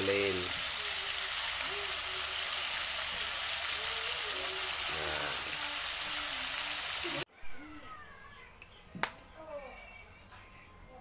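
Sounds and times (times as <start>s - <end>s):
pork sizzling in hot oil: 0.0s - 7.3s.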